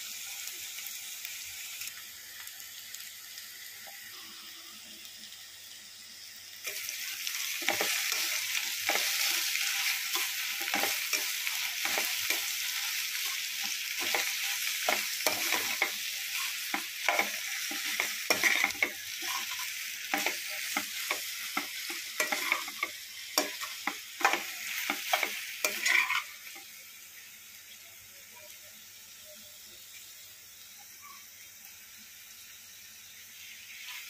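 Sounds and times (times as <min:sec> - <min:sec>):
food sizzling in oil: 0:00.0 - 0:34.0
metal spatula scraping a pan: 0:06.7 - 0:26.4.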